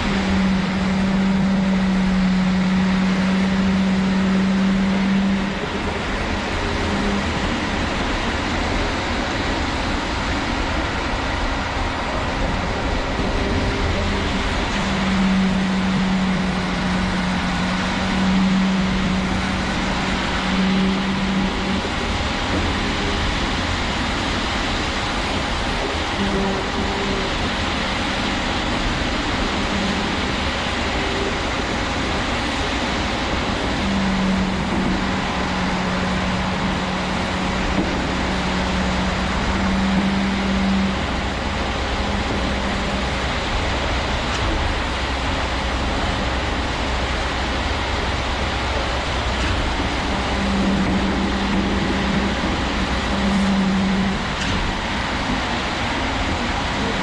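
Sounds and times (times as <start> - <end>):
concrete pump truck engine: 0.0 - 57.0.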